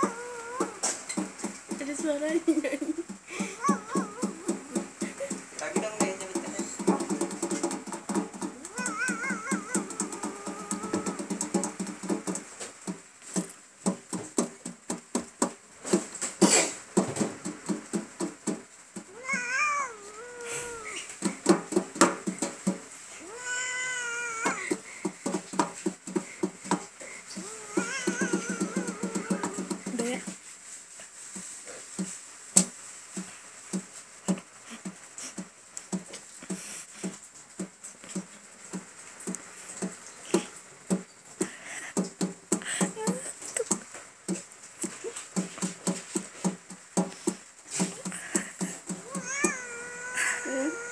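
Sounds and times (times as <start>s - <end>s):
cat meowing: 0.0s - 1.0s, 3.6s - 4.8s, 8.5s - 11.4s, 19.1s - 21.2s, 23.2s - 24.8s, 27.4s - 29.9s, 49.0s - 50.9s
paws tapping metal tin: 3.1s - 12.5s.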